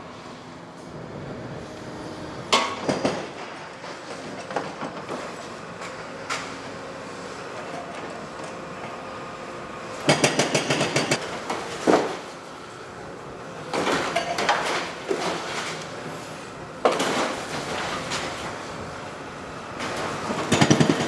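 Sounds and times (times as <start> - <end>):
excavator breaking concrete: 2.5 - 6.4, 10.0 - 12.3, 13.7 - 15.8, 16.8 - 18.6, 19.8 - 21.0.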